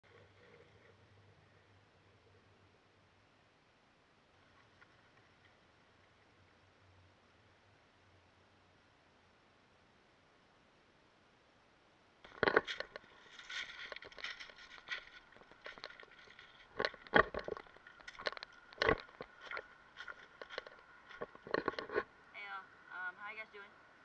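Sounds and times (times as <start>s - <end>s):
footsteps on gravel and rocks: 12.3s - 22.1s.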